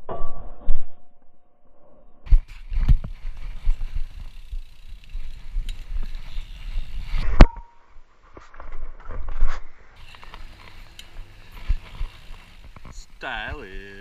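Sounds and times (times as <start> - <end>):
bike tyres rolling on asphalt: 2.3 - 7.4, 8.4 - 14.0.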